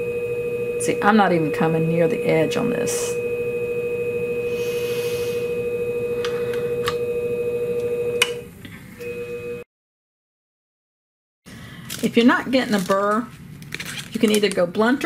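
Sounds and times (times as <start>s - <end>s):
sharpening machine humming: 0.0s - 9.6s.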